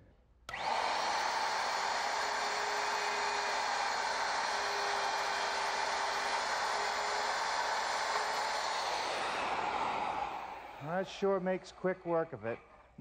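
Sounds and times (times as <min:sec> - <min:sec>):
electric router cutting wood: 0:00.5 - 0:11.1.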